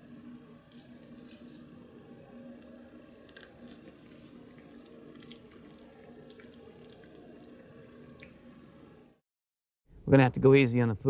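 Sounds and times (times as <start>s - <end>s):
low steady hum: 0.0s - 9.2s
wet mouth clicks and smacks: 4.7s - 8.6s.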